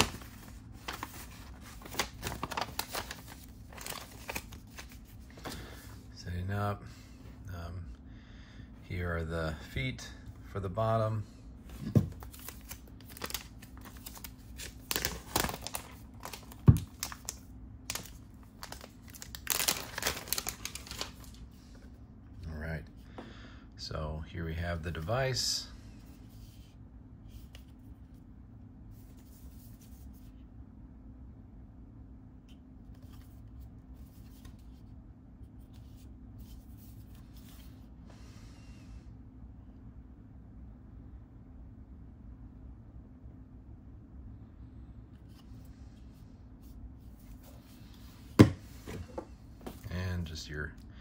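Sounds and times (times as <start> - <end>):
backing liner crinkling: 0.0 - 5.8, 11.7 - 21.4
steady low hum: 0.0 - 51.0
plastic case handled: 48.4 - 49.8.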